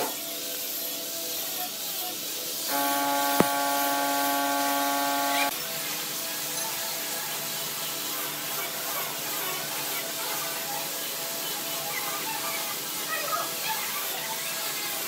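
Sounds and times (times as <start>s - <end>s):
background hiss: 2.7s - 5.5s
faint hum: 2.7s - 5.5s.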